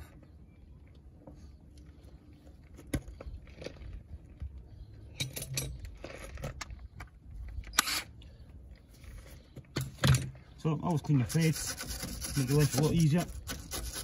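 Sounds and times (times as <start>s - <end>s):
metal tools clinking and scraping: 5.1s - 6.6s.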